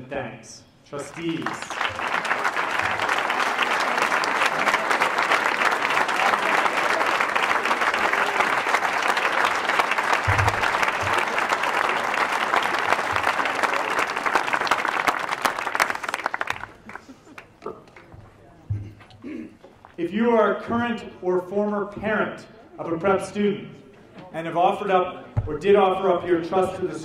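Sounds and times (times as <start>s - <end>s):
audience applauding: 1.0s - 18.1s.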